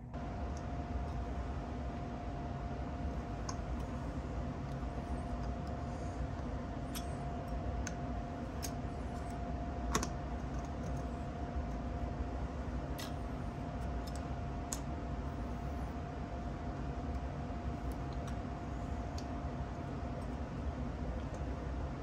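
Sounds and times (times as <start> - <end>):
steady background hum: 0.0 - 22.0.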